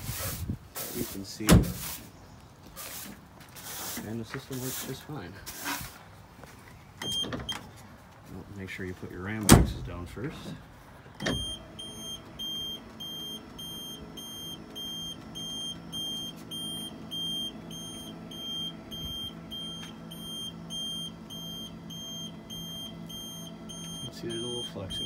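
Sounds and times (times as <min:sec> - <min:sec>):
high electronic beeps: 0:11.4 - 0:25.0.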